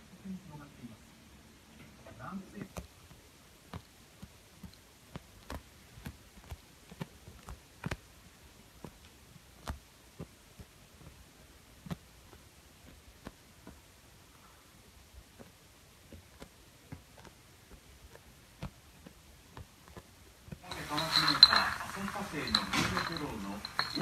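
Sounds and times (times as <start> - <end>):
cat sucking and chewing blanket: 2.0 - 21.1.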